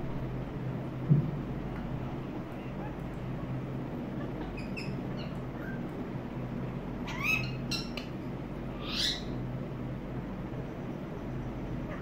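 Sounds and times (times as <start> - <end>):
parakeets chirping: 2.5 - 5.9, 7.0 - 9.4
parakeets squawking: 4.1 - 5.9, 7.0 - 9.4.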